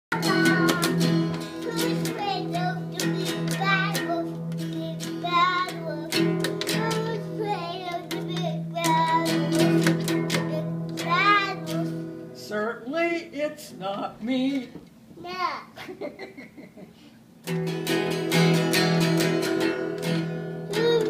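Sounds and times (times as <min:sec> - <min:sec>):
child singing: 0:00.1 - 0:12.1, 0:20.6 - 0:21.0
child strumming acoustic guitar: 0:00.1 - 0:12.4, 0:17.4 - 0:21.0.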